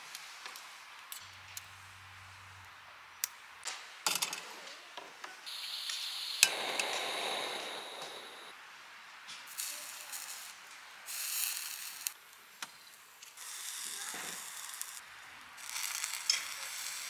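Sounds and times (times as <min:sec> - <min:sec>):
gas burner hissing: 0:05.5 - 0:08.6, 0:09.4 - 0:12.2, 0:13.2 - 0:17.0.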